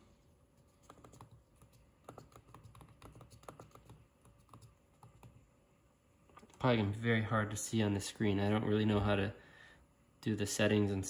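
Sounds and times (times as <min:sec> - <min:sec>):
faint keyboard typing: 0:00.6 - 0:05.5, 0:06.3 - 0:06.7.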